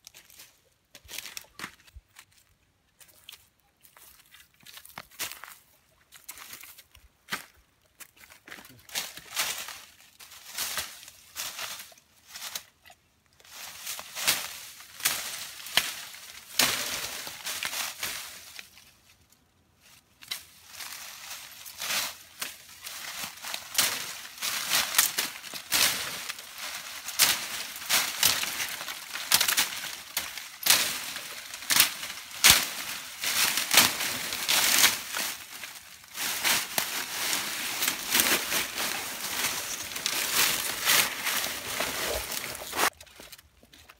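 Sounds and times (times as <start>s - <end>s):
dry leaves crackling: 8.8s - 12.7s, 13.4s - 43.4s.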